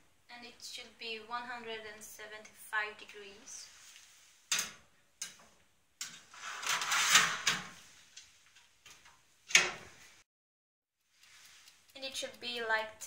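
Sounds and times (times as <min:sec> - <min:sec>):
metal tray sliding into oven: 0:06.1 - 0:07.8.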